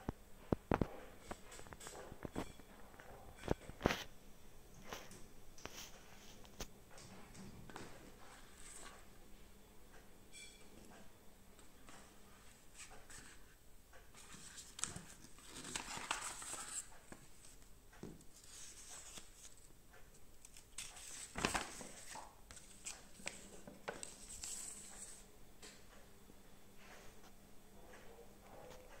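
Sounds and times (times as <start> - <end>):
paper rustling and crinkling: 7.7 - 9.1, 14.2 - 17.7, 18.3 - 19.7, 20.4 - 25.2.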